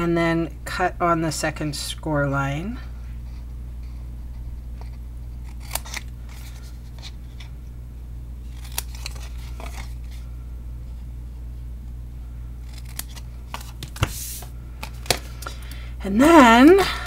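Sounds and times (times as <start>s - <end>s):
steady low hum: 0.0s - 17.0s
scissors cutting cardstock: 4.8s - 7.5s, 8.5s - 10.0s, 12.6s - 15.2s.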